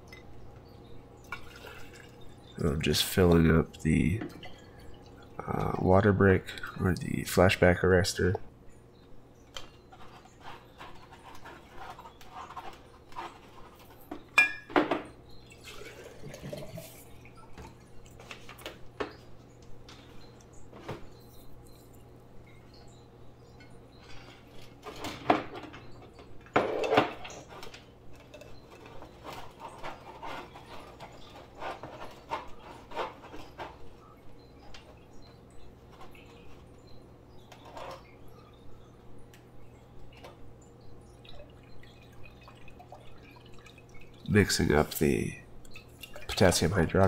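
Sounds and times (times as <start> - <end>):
glass jars clinking: 14.3 - 16.9.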